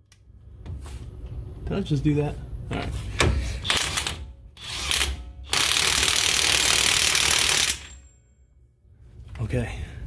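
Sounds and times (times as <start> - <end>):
impact wrench hammering: 3.2 - 8.1.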